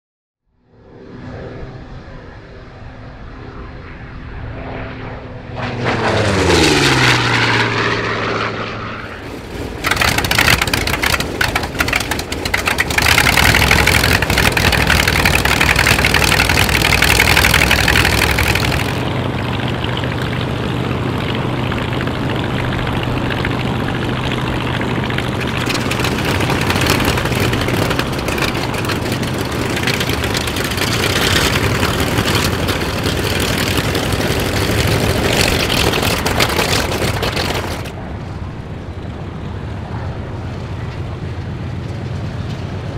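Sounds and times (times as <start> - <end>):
propeller plane passing: 0.5 - 42.9
radial engines idling roughly: 9.4 - 19.0, 23.1 - 37.9.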